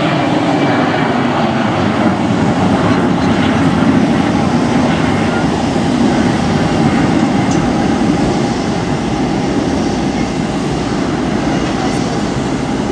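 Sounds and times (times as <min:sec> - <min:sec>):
jet airliner rumble: 0:00.0 - 0:12.9.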